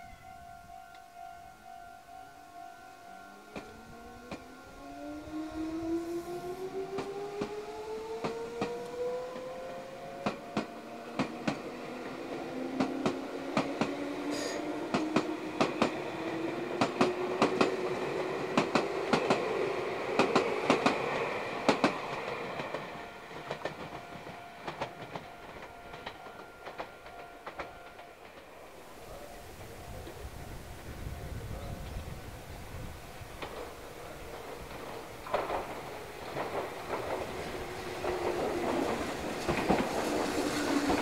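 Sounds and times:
train traction motor whine: 3.0 - 31.4
wheels clacking over rail joints: 6.4 - 29.2, 33.2 - 41.0.

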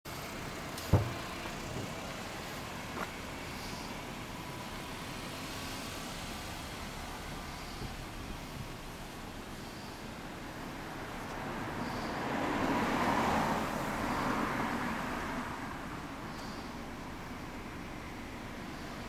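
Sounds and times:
road traffic noise: 0.0 - 19.0
sharp thump: 0.8 - 1.9
small knock: 0.9 - 1.2.

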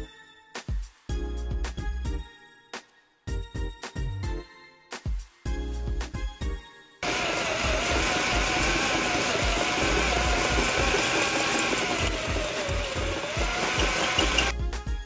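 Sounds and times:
electric drill whining under load: 7.0 - 14.5.

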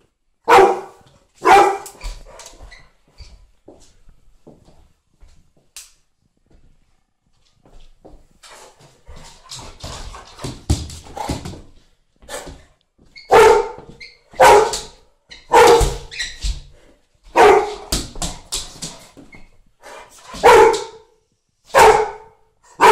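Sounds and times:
dog barking: 0.4 - 2.0, 13.3 - 16.1, 17.3 - 17.9, 20.3 - 22.9.

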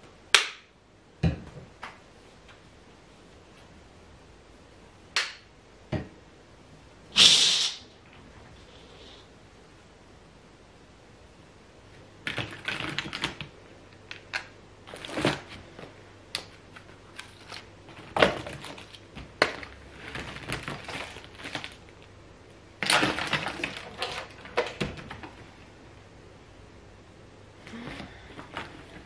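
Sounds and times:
rummaging through household items: 14.1 - 16.0, 16.6 - 22.0, 22.8 - 25.4, 27.7 - 29.0
plastic bags rustling: 14.1 - 22.1, 22.8 - 25.5.

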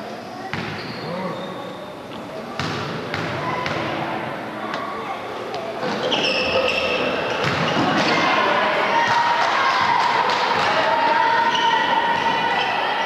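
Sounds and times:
ball bouncing on wooden court: 2.6 - 3.9
spectators shouting and cheering: 6.4 - 13.0.

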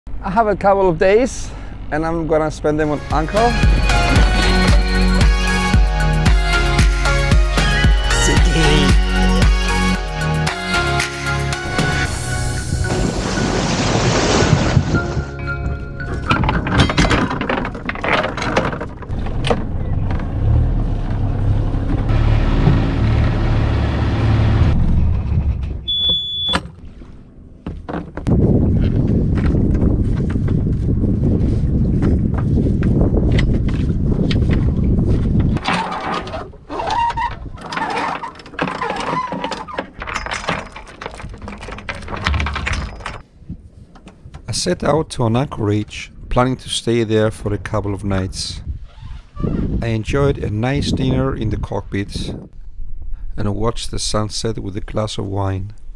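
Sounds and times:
boat engine droning: 0.1 - 28.2
anchor chain rattling over metal: 16.0 - 20.1, 35.6 - 43.3
gear knocking and clattering: 16.1 - 21.2, 35.3 - 43.2.

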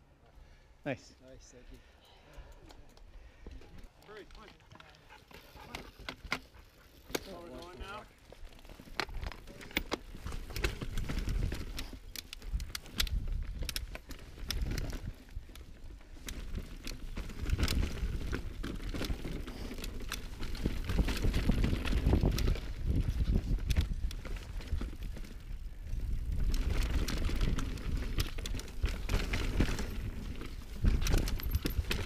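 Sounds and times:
bike clicks and rattles: 1.7 - 32.0
wind buffeting microphone: 20.4 - 32.0.

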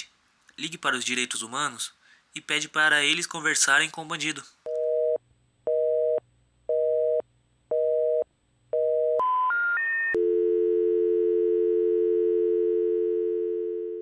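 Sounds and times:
rising telephone tones: 8.8 - 14.0
steady telephone tone: 8.8 - 14.0
telephone busy tone beeps: 8.8 - 14.0.

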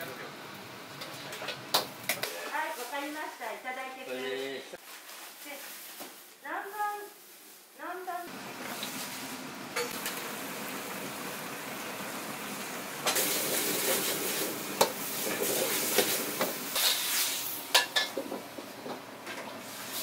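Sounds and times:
food sizzling in a pan: 8.3 - 18.2.

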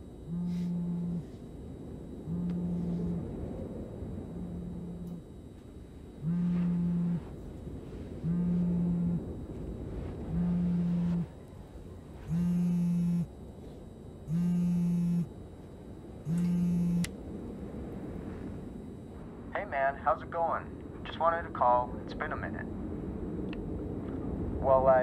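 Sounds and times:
mobile phone vibrating: 0.0 - 1.6, 2.2 - 3.5, 4.2 - 5.3, 6.2 - 9.4, 10.1 - 11.4, 12.2 - 13.3, 14.3 - 15.3, 16.2 - 17.1.

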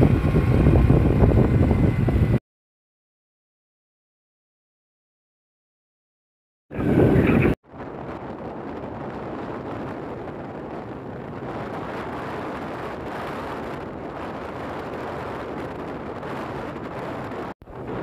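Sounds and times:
motorbike running: 0.0 - 2.4
wind rushing on microphone: 0.0 - 2.4, 6.7 - 18.0.

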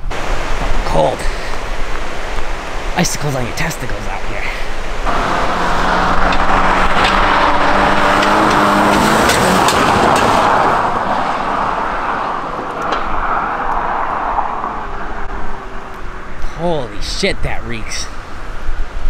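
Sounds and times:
car engine: 1.8 - 18.7
loud tyre noise: 4.3 - 17.3
sharp knocks: 6.0 - 10.7
wind rumble on microphone: 18.1 - 19.0.

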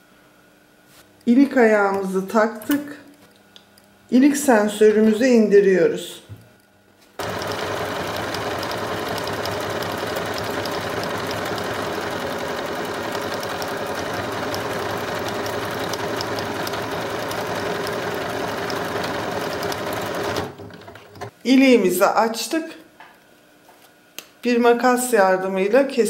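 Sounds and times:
sewing machine stitching: 7.2 - 21.3.

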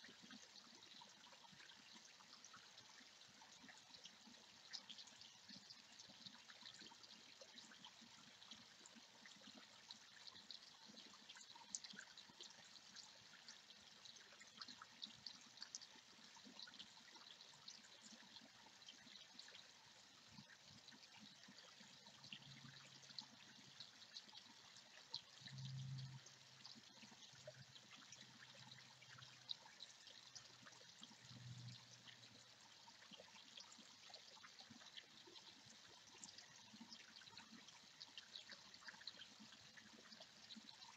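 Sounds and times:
water trickling over stones: 0.0 - 40.9
faint low hum: 16.9 - 40.9.

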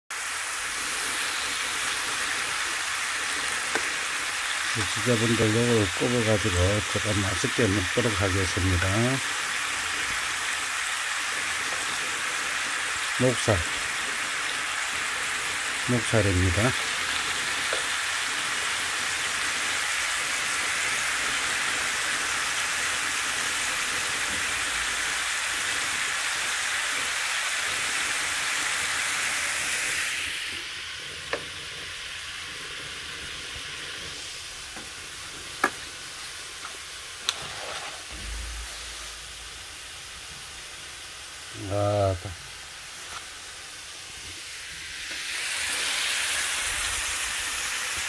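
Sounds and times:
meat sizzling in a frying pan: 0.1 - 48.0.

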